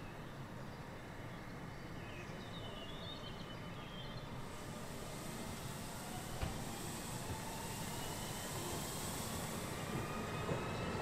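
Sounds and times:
train approaching with rumble: 0:04.2 - 0:11.0.

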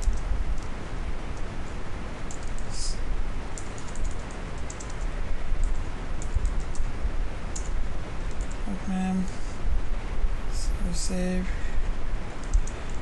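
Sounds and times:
low background rumble: 0:00.0 - 0:13.0
keyboard key clicks: 0:02.3 - 0:02.7, 0:03.6 - 0:06.9, 0:12.4 - 0:13.0.

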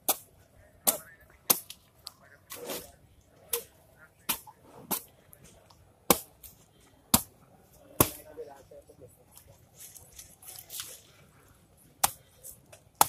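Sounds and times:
palm stalks cracking and snapping: 0:09.8 - 0:11.1.

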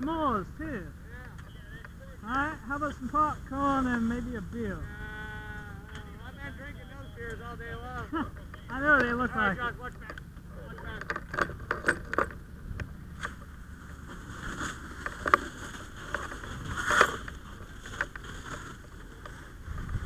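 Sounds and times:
gear clicking and rustling: 0:01.0 - 0:20.0
low wind rumble on microphone: 0:11.5 - 0:20.0.

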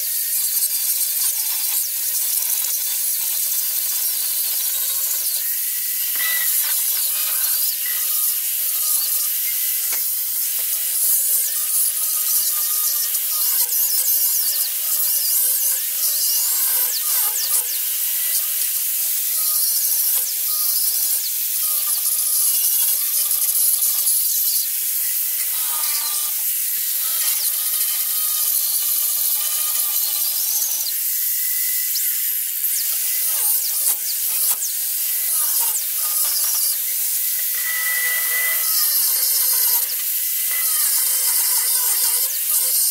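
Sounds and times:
disc grinder grinding steel: 0:00.0 - 0:42.9.

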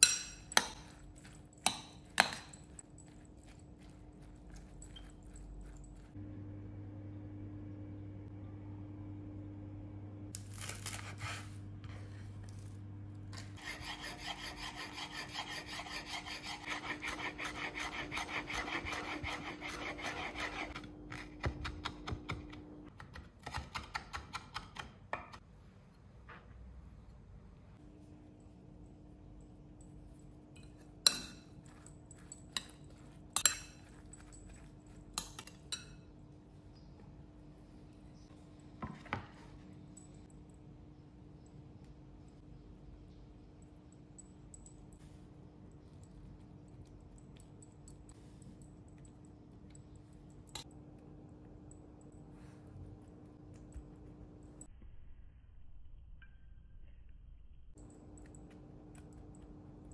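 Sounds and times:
metal spoon clinking on glass bowl: 0:00.0 - 0:06.1, 0:30.6 - 0:36.1
steady low hum: 0:00.0 - 0:22.9, 0:25.4 - 0:59.9
parsley leaves rustling and tearing: 0:10.3 - 0:11.6.

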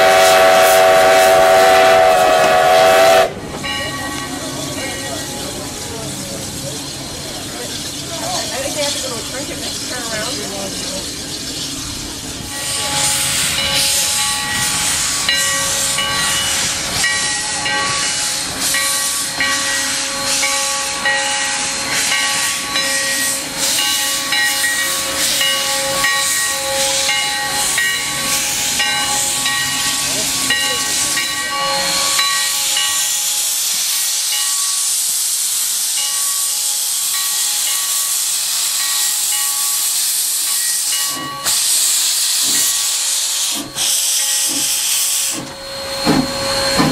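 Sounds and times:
steam locomotive hissing: 0:00.0 - 0:46.9
locomotive bell ringing: 0:03.4 - 0:06.1, 0:12.4 - 0:33.2, 0:38.8 - 0:39.9, 0:40.5 - 0:41.6.

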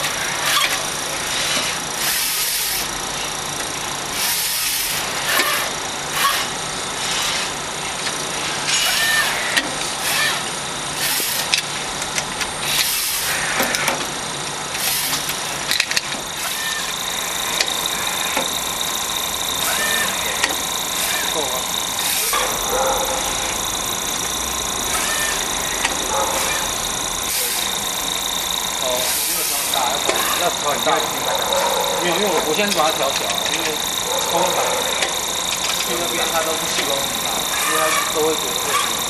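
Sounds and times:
pneumatic air hiss: 0:00.0 - 0:03.3, 0:04.1 - 0:07.7, 0:08.4 - 0:11.8, 0:12.6 - 0:14.1, 0:14.7 - 0:39.0
high machine hum: 0:00.0 - 0:39.0
sharp clicks: 0:32.4 - 0:36.2.

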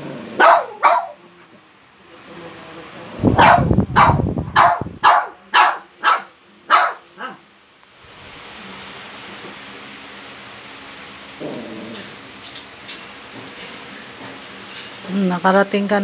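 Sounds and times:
small dog barking: 0:00.3 - 0:01.2, 0:03.3 - 0:07.4.

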